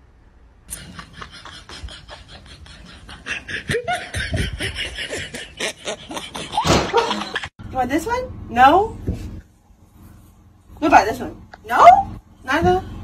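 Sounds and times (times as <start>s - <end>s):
person laughing in breathy bursts: 0.7s - 7.5s.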